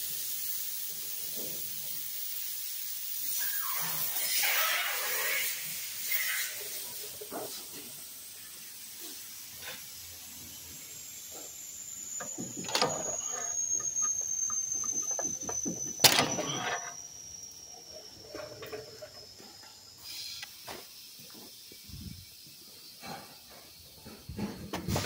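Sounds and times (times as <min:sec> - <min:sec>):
faint high whine: 0:09.7 - 0:22.8.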